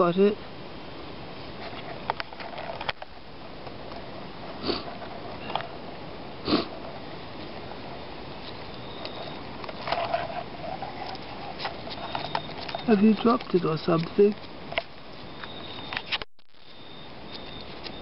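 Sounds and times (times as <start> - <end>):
person sniffing: 4.6 - 4.9, 6.4 - 6.7.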